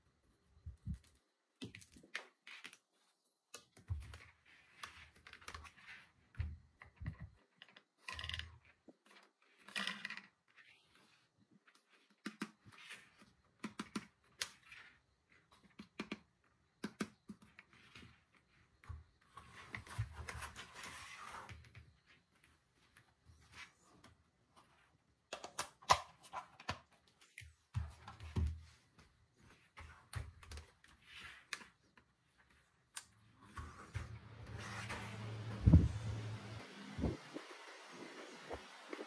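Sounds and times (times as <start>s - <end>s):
plastic clicks and taps: 25.3s - 27.5s.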